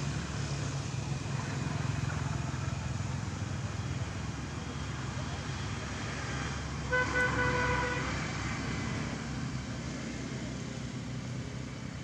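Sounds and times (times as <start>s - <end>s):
road traffic rumble: 0.0s - 12.0s
vehicle horn: 6.9s - 8.1s.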